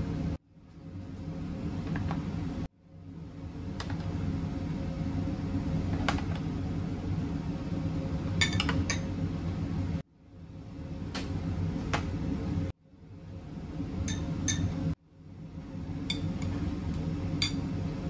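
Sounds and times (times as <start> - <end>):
low kitchen hum: 0.0 - 18.0
dishes and utensils clinking: 8.4 - 9.1.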